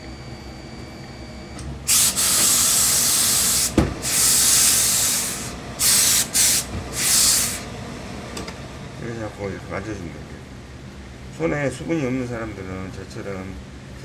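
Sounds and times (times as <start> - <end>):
steam iron hissing: 1.9 - 7.7.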